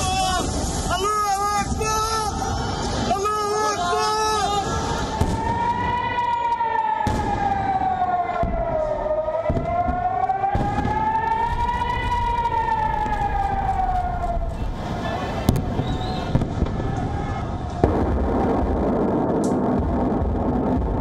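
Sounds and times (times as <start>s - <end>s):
air-raid siren wailing: 1.3s - 17.8s.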